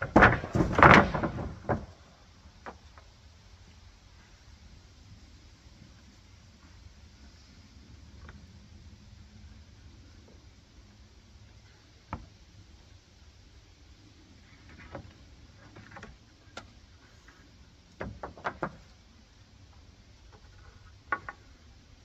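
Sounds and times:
wooden knocks and clunks: 0.0s - 3.1s, 12.1s - 12.4s, 14.6s - 19.0s, 20.3s - 21.6s.

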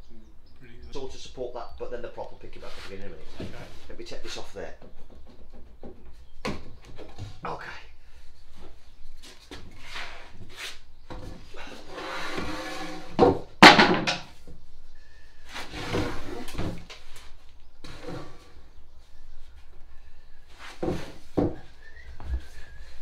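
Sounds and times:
wooden clunks and scrapes: 2.6s - 7.4s, 8.5s - 14.6s, 15.5s - 18.8s, 20.5s - 23.0s.

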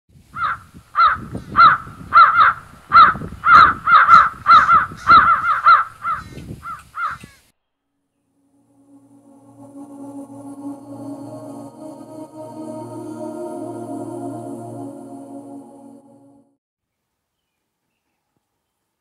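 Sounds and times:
crows cawing: 0.4s - 7.4s.

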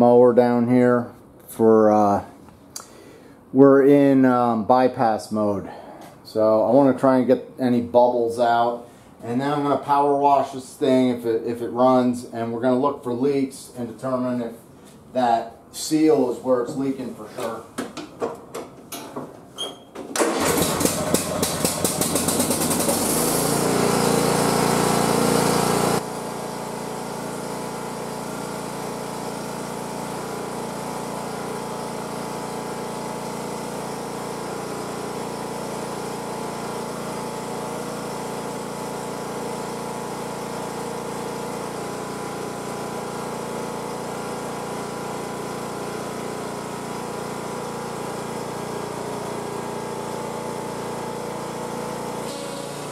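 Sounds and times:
mower engine starting and running: 17.4s - 52.9s.

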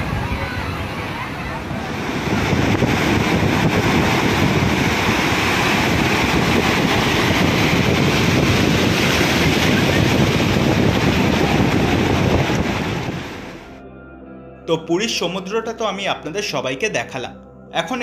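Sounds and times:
waves breaking on a beach: 0.0s - 13.6s
wind blowing on microphone: 0.0s - 13.6s.

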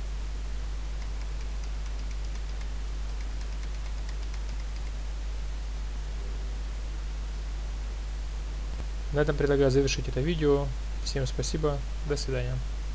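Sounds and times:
low electrical hum: 0.0s - 12.9s
keyboard keys clicking: 1.0s - 5.0s.

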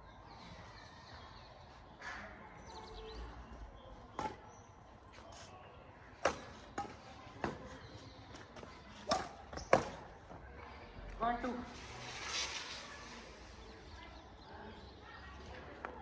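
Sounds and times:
badminton rackets hitting shuttlecock: 6.2s - 7.6s, 9.0s - 10.0s.

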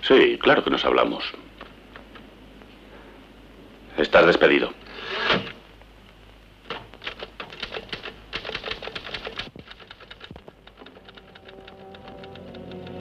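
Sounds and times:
manual typewriter keystrokes: 6.7s - 13.0s
music: 10.6s - 13.0s.

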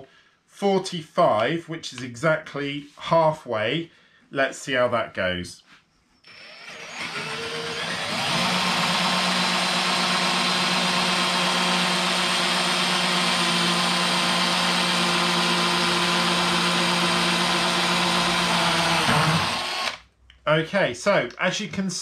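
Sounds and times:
cordless drill drilling wood: 6.2s - 20.0s.

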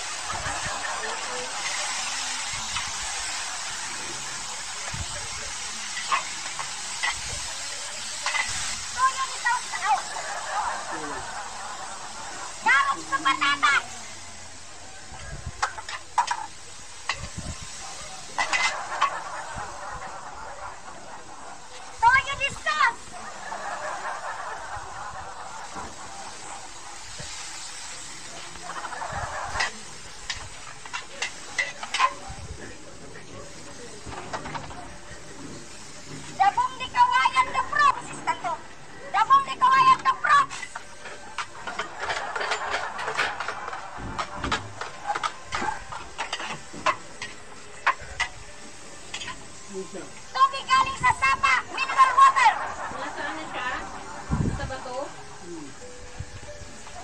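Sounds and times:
meat sizzling in a wok: 0.0s - 57.0s
metal spatula scraping a wok: 0.2s - 4.2s, 5.6s - 10.2s, 15.6s - 19.2s, 25.6s - 32.2s, 40.4s - 48.4s, 49.0s - 49.6s.

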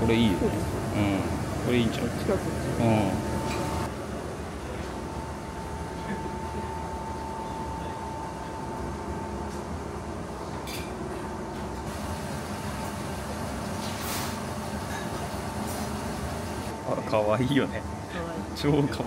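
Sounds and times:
thin steady whine: 0.0s - 10.5s
ventilation hum: 0.0s - 19.0s.

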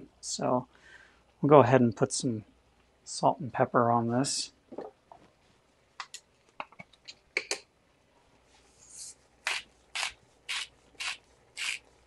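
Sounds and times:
grinder rasping: 9.4s - 11.9s.

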